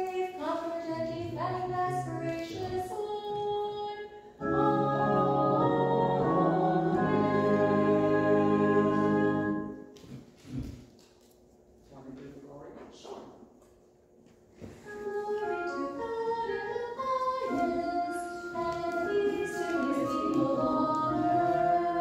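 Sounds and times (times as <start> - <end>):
people singing a hymn: 4.4 - 9.9, 16.0 - 22.0.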